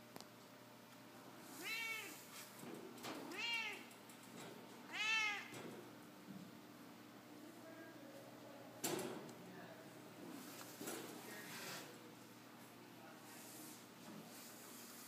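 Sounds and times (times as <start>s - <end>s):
cat meowing: 1.6s - 2.2s, 3.3s - 3.9s, 4.9s - 5.5s.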